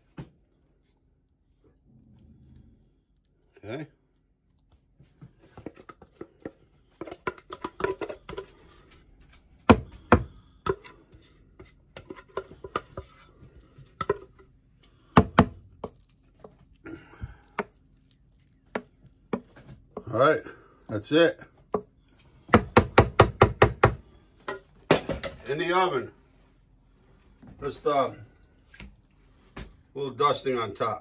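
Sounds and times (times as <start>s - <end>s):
soft scraping of mashed potato: 4.6s - 22.5s.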